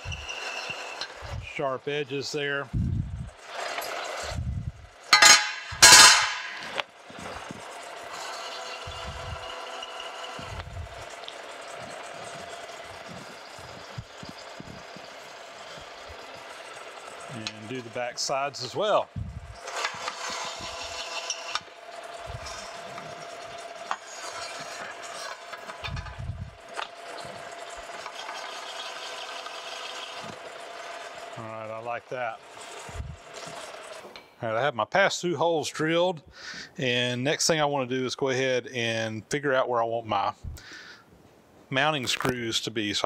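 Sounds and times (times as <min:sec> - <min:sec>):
bit scraping metal: 0:00.0 - 0:34.2
drilling machine spindle running: 0:00.0 - 0:34.2
metal plate clicks and knocks: 0:05.2 - 0:06.6.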